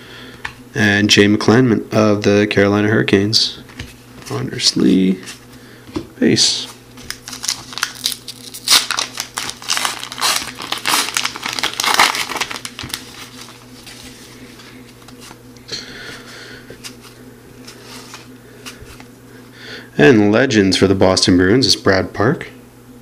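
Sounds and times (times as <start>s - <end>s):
cards rustling: 6.6s - 15.5s, 16.1s - 19.1s
foil wrapper tearing and crinkling: 7.0s - 14.2s.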